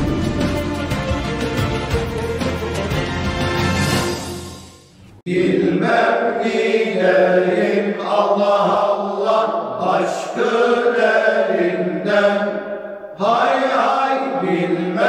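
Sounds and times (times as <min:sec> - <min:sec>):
instrumental music: 0:00.0 - 0:05.2
male choir singing a cappella: 0:05.3 - 0:15.0.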